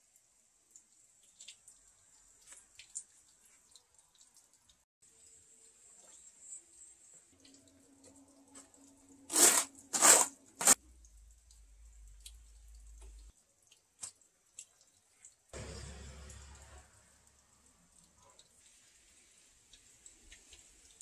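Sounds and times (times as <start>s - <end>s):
gritty scrapes of bricks in mortar: 9.3s - 10.8s.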